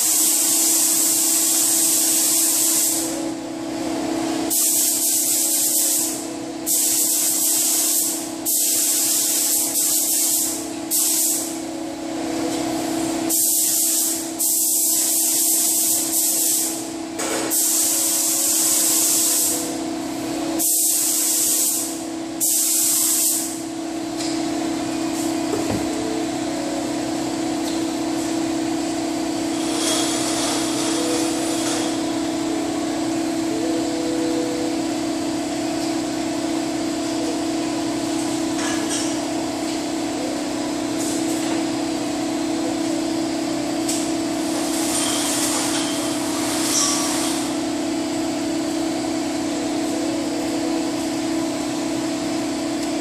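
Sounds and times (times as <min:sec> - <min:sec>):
paint spray gun hissing: 0:00.0 - 0:03.2, 0:04.5 - 0:11.6, 0:13.3 - 0:16.8, 0:17.5 - 0:19.7, 0:20.6 - 0:23.6
steady hum: 0:00.0 - 0:53.0.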